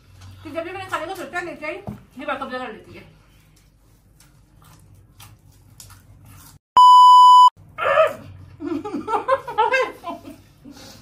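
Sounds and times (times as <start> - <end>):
crunching dry noodles: 3.8 - 6.6
censor beep: 6.8 - 7.5.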